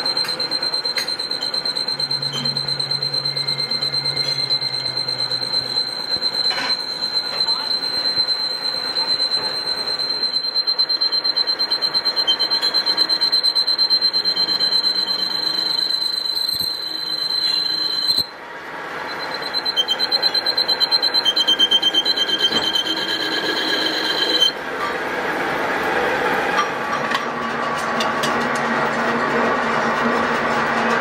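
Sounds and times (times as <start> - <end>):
metal lathe cutting tool squealing: 0.0 - 18.4, 19.1 - 25.0.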